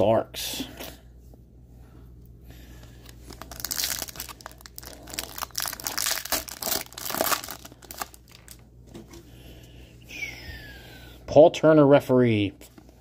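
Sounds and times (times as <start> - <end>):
foil wrapper tearing and crinkling: 3.1 - 8.6.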